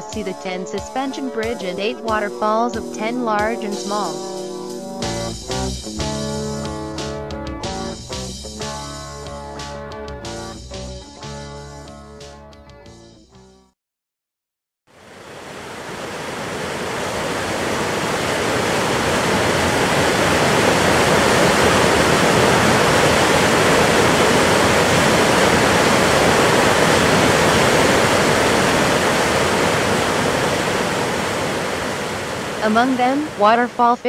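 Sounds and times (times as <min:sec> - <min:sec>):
stream rushing over boulders: 0:15.1 - 0:33.5.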